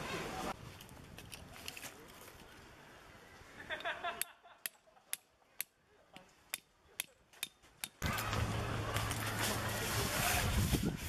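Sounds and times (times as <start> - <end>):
outdoor noise with low hum: 0.0 - 10.4.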